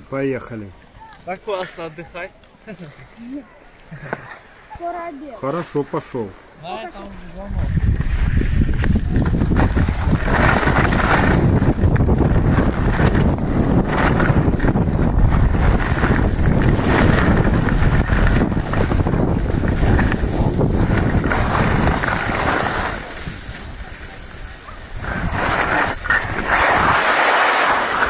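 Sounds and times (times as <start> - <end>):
skis sliding over snow: 4.1 - 28.0
wind rushing over microphone: 7.0 - 28.0.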